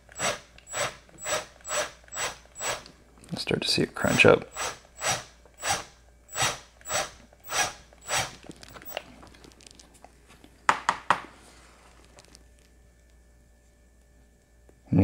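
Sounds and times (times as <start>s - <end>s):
power drill grinding into metal: 0.0s - 2.9s, 4.5s - 9.0s.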